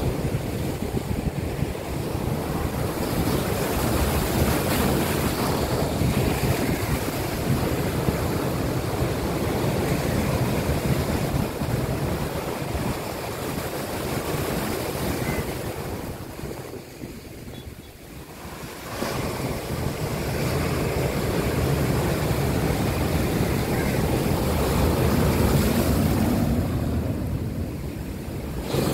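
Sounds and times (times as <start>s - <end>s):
wind buffeting microphone: 0.0s - 28.9s
surf breaking over boulders: 18.2s - 28.9s.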